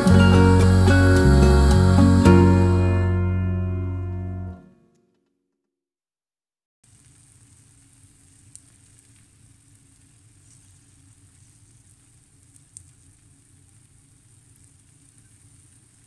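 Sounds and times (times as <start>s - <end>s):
egg sizzling in oil: 6.8s - 16.0s.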